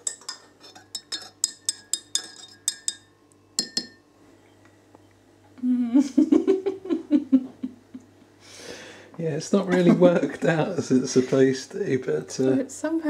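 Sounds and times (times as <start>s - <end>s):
teaspoon clinking in ceramic mug: 0.0s - 4.0s.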